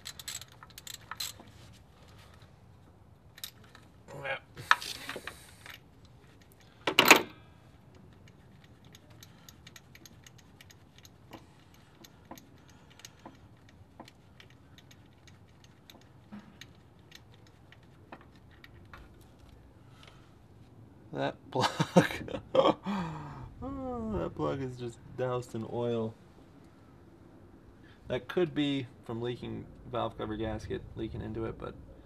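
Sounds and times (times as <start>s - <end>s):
ratchet wrench clicking: 0.0s - 1.4s, 8.2s - 18.8s.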